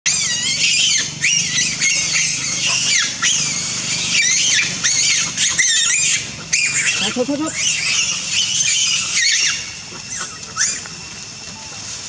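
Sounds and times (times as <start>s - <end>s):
monkeys screaming: 0.1s - 11.1s.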